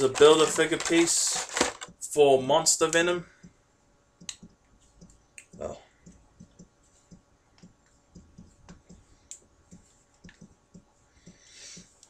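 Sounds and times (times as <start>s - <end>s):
plastic parts clicking and tapping: 0.0s - 2.0s.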